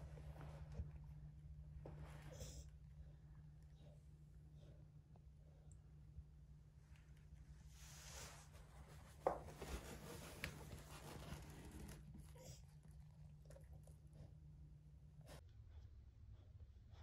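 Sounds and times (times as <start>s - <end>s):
faint rustling and scratching: 6.8s - 14.4s.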